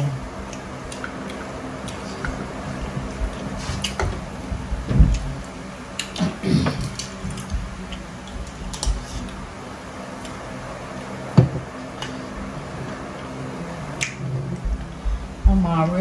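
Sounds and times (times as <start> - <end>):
chewing: 0.4 - 4.0, 5.1 - 9.4.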